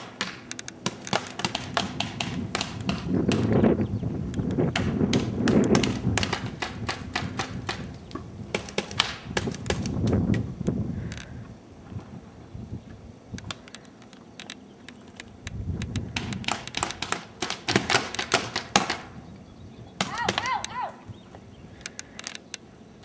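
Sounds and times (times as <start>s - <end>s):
paintball markers popping: 0.2s - 3.5s, 13.4s - 19.0s, 21.8s - 22.6s
short high shout: 20.1s - 21.1s.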